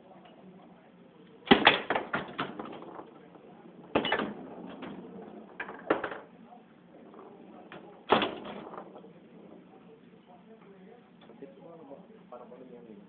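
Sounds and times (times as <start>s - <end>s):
foosball ball clacking: 1.5s - 6.3s, 7.0s - 9.1s.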